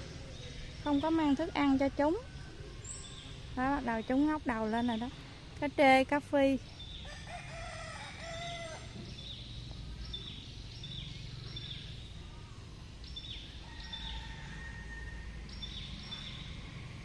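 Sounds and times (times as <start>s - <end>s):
small birds chirping: 0.0s - 7.6s, 8.2s - 14.5s, 15.5s - 16.7s
low outdoor rumble: 0.0s - 17.0s
rooster crowing: 7.0s - 9.0s, 13.6s - 15.5s.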